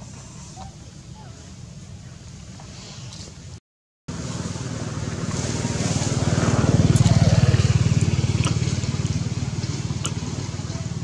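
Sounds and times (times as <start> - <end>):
motorcycle engine passing: 4.1 - 11.0.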